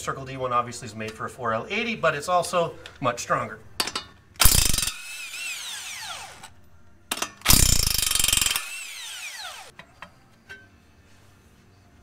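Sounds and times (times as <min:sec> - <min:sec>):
impact wrench hammering: 0:03.8 - 0:06.5, 0:07.1 - 0:09.7.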